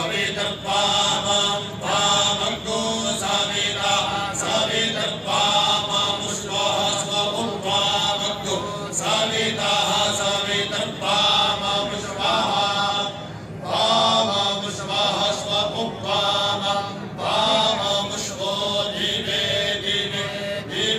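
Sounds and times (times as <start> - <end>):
men chanting in unison: 0.0 - 20.9.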